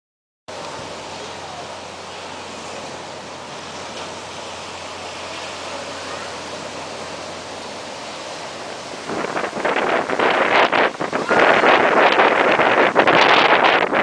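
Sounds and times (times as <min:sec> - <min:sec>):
surf: 0:00.5 - 0:14.0
wind buffeting microphone: 0:00.5 - 0:14.0
storm wind rushing: 0:06.4 - 0:14.0.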